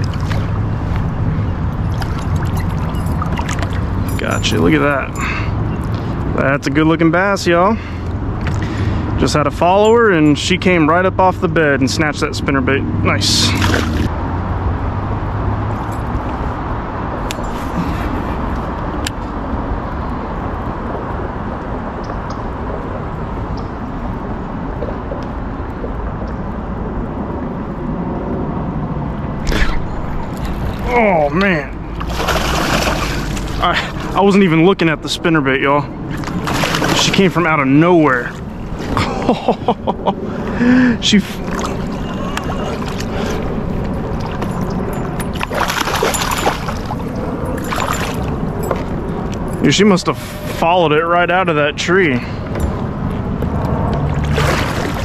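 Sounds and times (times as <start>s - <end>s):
water splashing and sloshing: 0.0s - 6.3s, 13.2s - 14.7s, 29.3s - 49.6s, 52.5s - 55.0s
low rushing water: 0.0s - 6.8s, 28.7s - 49.9s, 54.0s - 55.0s
road traffic hum: 0.0s - 55.0s
fish splashing at surface: 1.9s - 4.1s, 32.0s - 34.2s, 36.2s - 37.2s, 45.3s - 48.3s, 54.0s - 55.0s.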